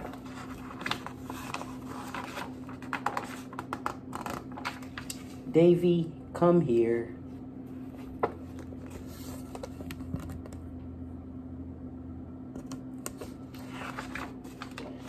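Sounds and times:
paper rustling and taps: 0:00.0 - 0:05.3
low hum: 0:04.6 - 0:15.0.

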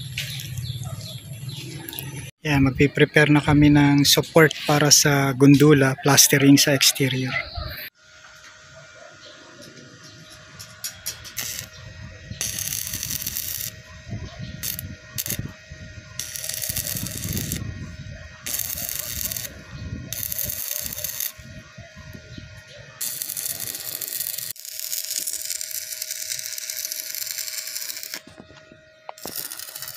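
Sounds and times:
welding arc crackling: 0:00.0 - 0:02.3, 0:09.7 - 0:29.9
welding arc spitting: 0:10.4 - 0:28.4, 0:29.2 - 0:29.9.

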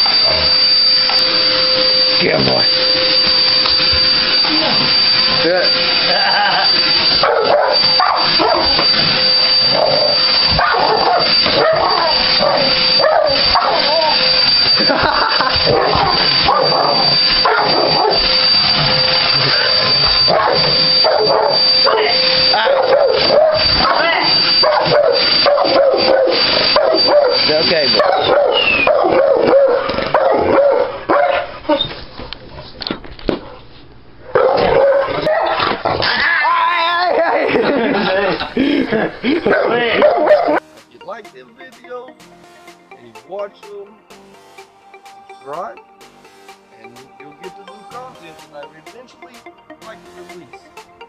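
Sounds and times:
vacuum cleaner motor whine: 0:00.0 - 0:40.9
dog barking and yipping: 0:06.8 - 0:32.0, 0:34.3 - 0:37.6, 0:39.4 - 0:40.6.

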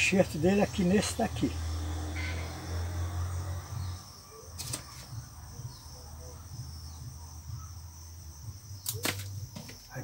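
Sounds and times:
insects chirring: 0:00.0 - 0:10.0
pruning shears snip: 0:08.8 - 0:09.8.

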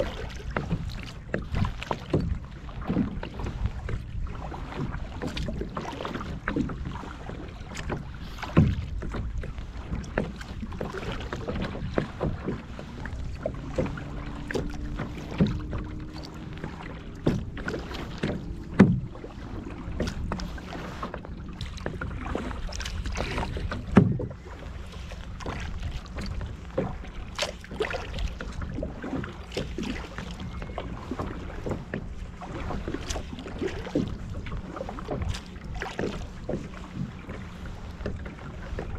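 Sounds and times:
waves slapping against kayak hull: 0:00.0 - 0:38.9
wind rumble on microphone: 0:00.0 - 0:38.9.

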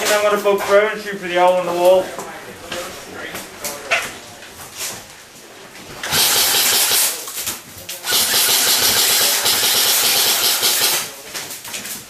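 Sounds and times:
airsoft rifle full auto bursts: 0:06.0 - 0:07.2, 0:08.0 - 0:11.1.

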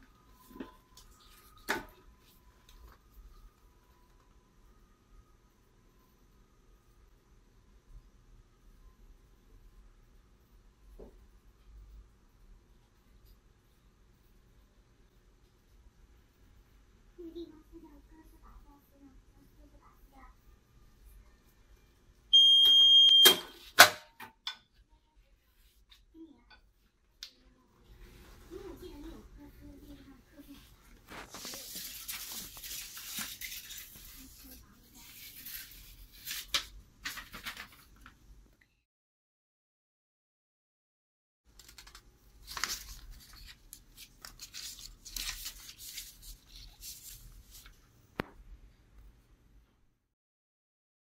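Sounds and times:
timer alarm beep: 0:22.3 - 0:23.6
paper rustling and crinkling: 0:30.4 - 0:38.2, 0:41.5 - 0:47.8.

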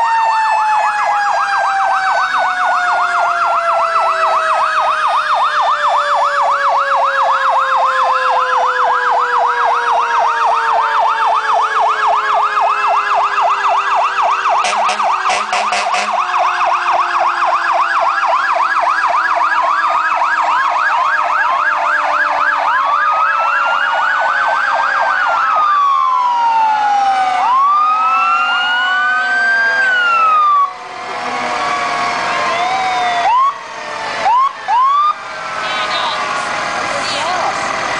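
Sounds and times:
fire engine sirens: 0:00.0 - 0:37.9
short horn blasts: 0:14.6 - 0:16.2.

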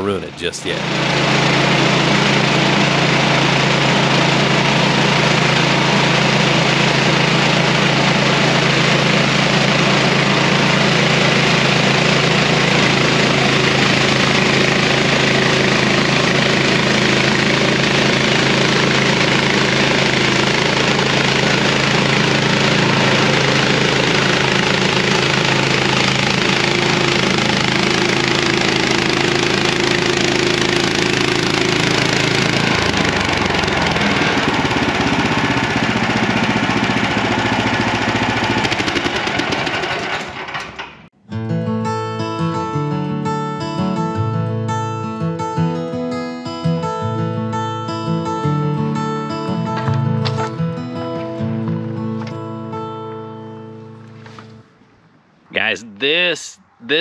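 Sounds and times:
band sawmill cutting log: 0:00.0 - 0:41.0.

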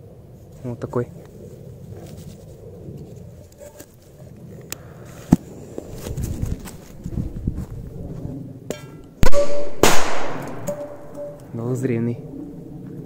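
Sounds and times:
firecracker bangs: 0:09.2 - 0:11.4.

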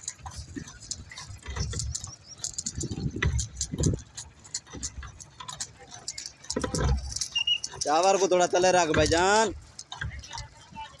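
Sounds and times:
stone chippings clicking and scraping: 0:00.0 - 0:11.0
dull low thumps: 0:01.4 - 0:05.4.

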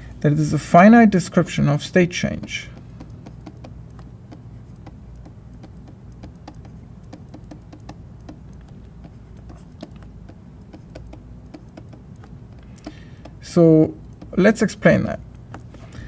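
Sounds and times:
stylus tapping on pen tablet: 0:02.3 - 0:14.5, 0:15.3 - 0:16.0.

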